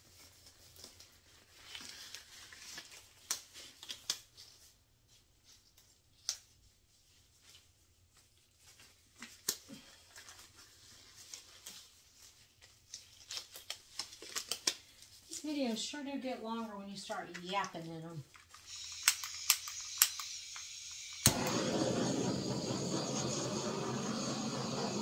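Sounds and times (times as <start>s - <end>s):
soft rustle: 0.0s - 17.2s.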